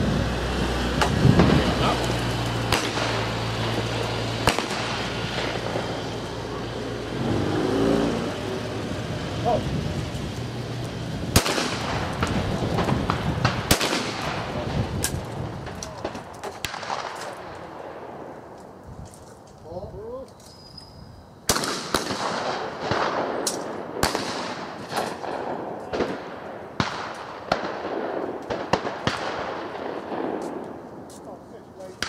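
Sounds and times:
shotgun shots: 2.7 - 5.9, 11.3 - 15.2, 16.0 - 18.0, 21.5 - 30.6.

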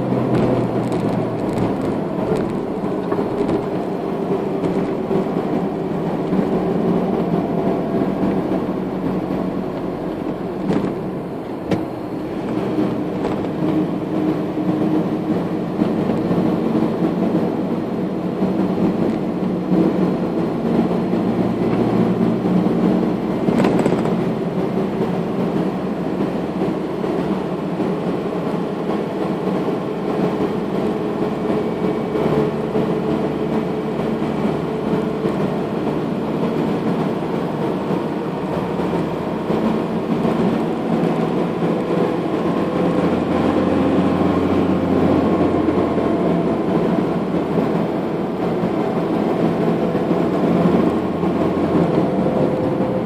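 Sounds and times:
car road noise from inside: 0.0 - 53.0.

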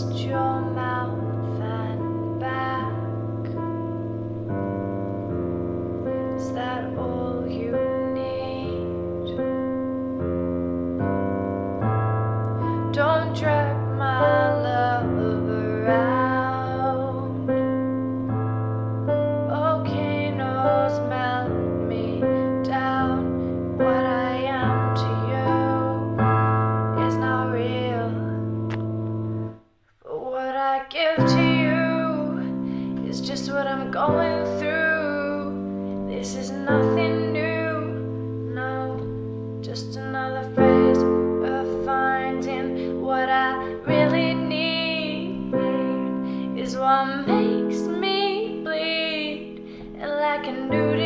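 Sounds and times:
piano chords on keyboard: 0.0 - 29.6, 31.1 - 51.0
woman singing long notes: 30.1 - 51.0.

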